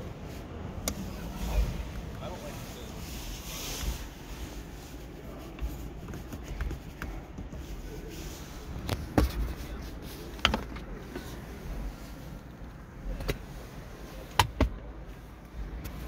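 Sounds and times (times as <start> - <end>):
low background hum: 0.0 - 16.0
handling taps and knocks: 10.3 - 11.3.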